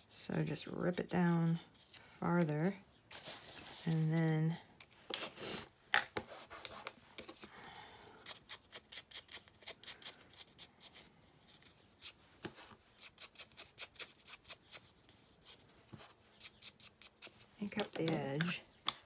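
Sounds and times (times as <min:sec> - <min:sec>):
soft rubbing: 0:03.1 - 0:04.6.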